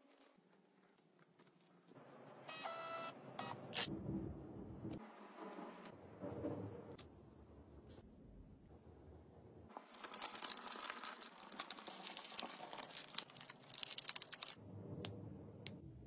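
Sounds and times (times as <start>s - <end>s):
paper crinkling: 0.0s - 2.0s, 9.7s - 14.6s.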